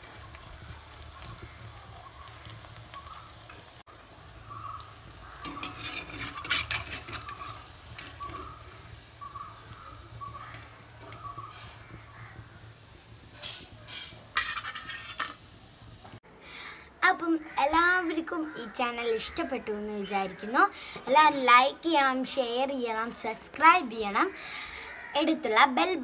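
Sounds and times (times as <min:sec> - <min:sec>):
deep-frying sizzle: 0:00.0 - 0:16.2
steel skimmer scraping and clinking: 0:05.4 - 0:08.6, 0:13.4 - 0:15.4.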